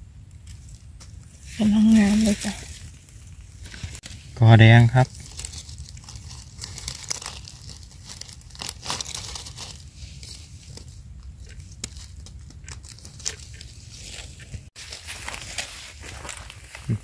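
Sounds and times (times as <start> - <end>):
dry leaves crackling and rustling: 0.4 - 17.0
knife snapping and scraping stem: 10.6 - 14.5.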